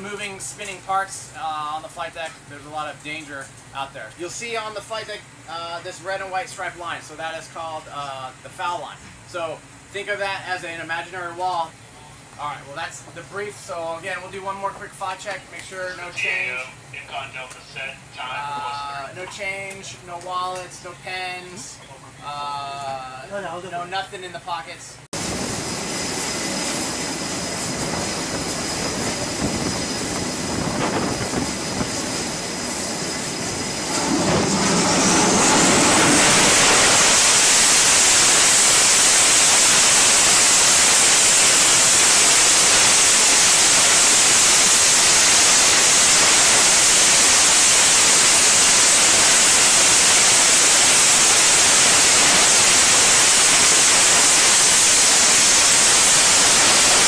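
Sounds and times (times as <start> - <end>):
jet engines whining and roaring: 25.2 - 57.0.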